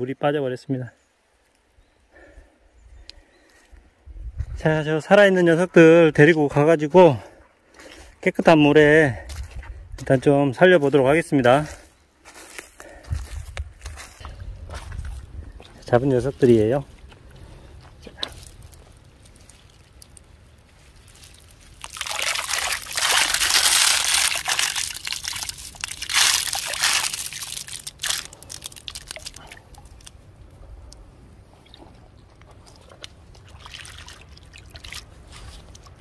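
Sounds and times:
small splashes: 18.2s - 30.1s, 31.6s - 36.0s
water trickling: 18.3s - 30.1s, 31.6s - 36.0s
net sloshing in water: 20.9s - 29.8s, 32.5s - 36.0s.

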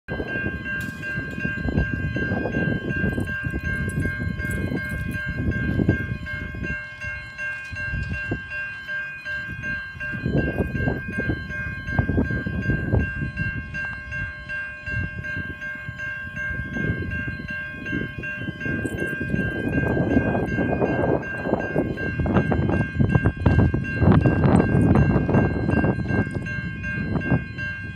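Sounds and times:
level crossing bell ringing: 0.1s - 27.9s
wind buffeting microphone: 0.1s - 27.9s.

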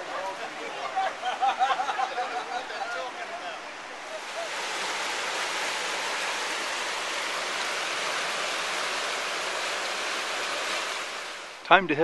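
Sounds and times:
water rushing over rocks: 3.7s - 12.0s.

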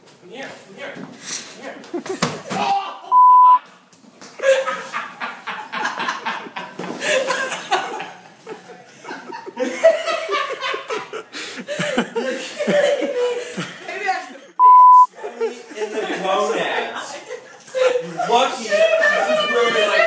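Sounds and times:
laughter: 1.9s - 3.2s, 4.4s - 14.0s, 15.1s - 20.0s.

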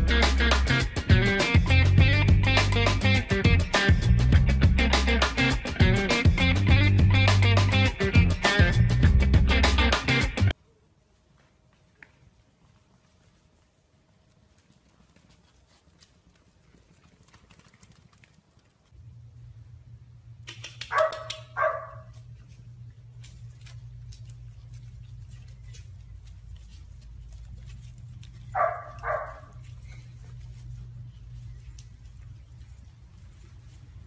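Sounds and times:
steady low hum: 18.4s - 34.0s.

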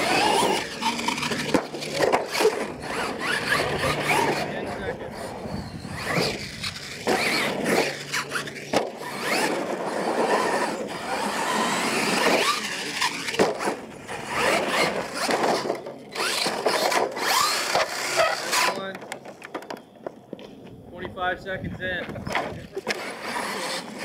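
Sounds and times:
toy truck motors whining: 0.0s - 19.0s, 22.2s - 24.0s
tyres scrabbling on dirt: 0.0s - 20.8s.

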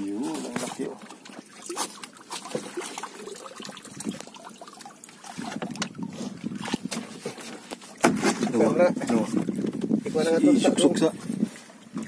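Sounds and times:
water trickling and splashing: 0.0s - 12.0s
fish trap and rope knocking: 6.6s - 9.9s.

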